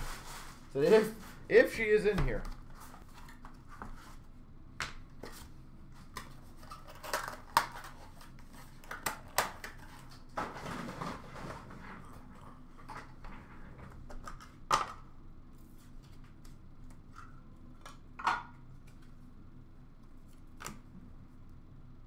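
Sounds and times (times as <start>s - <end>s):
cardboard and plastic rustling: 5.2s - 14.6s.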